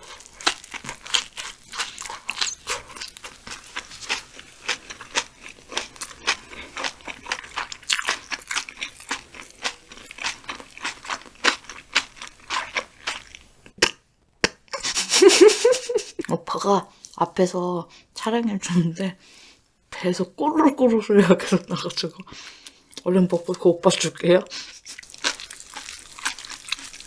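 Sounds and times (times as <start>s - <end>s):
person chewing bread: 0.0s - 15.2s, 24.6s - 27.0s.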